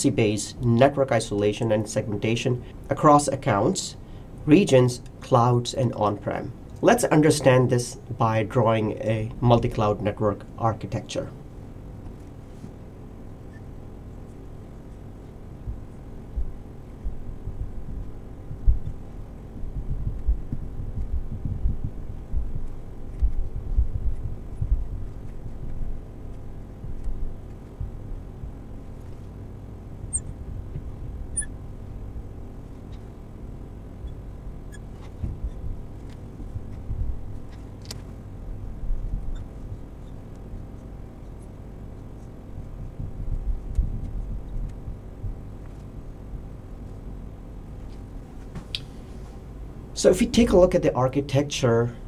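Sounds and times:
low thuds and rumble: 0:15.6 - 0:26.1.

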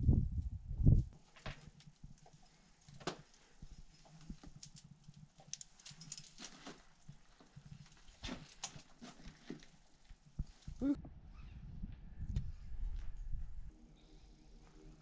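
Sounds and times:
climbing gear clicks and scuffs: 0:01.2 - 0:10.8.

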